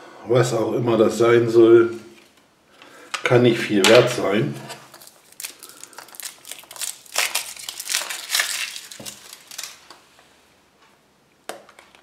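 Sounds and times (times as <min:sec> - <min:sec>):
foil wrapper crinkling: 0:04.7 - 0:10.0.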